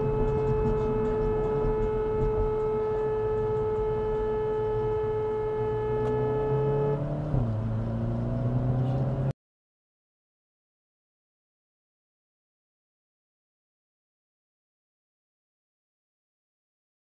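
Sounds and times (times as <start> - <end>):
car horn long blast: 0.0 - 7.0
car engine accelerating: 0.0 - 9.4.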